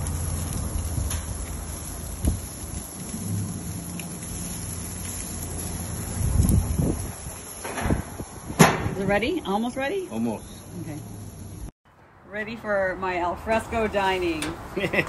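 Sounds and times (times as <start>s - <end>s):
steady low rumble: 0.0s - 9.5s
meat sizzling on grill: 0.0s - 11.7s.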